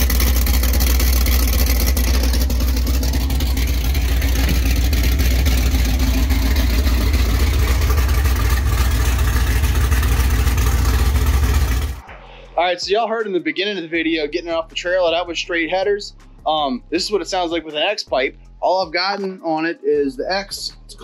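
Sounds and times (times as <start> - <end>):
loud car engine running: 0.0 - 12.2.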